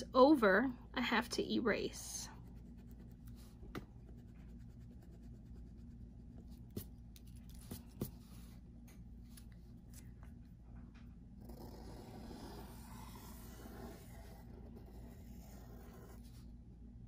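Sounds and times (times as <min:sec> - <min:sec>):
eraser rubbing on paper: 0:11.6 - 0:16.4.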